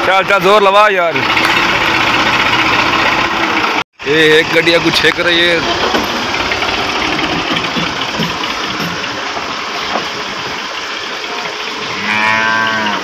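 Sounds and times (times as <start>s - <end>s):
diesel tractor engine running: 0.0s - 12.1s
drawn-out pitched call: 11.2s - 13.0s.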